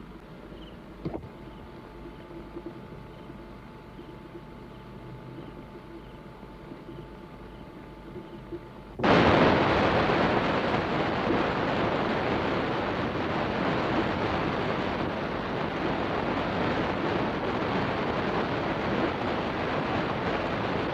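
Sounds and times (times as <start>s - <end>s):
loud steady rushing noise: 8.9s - 20.9s.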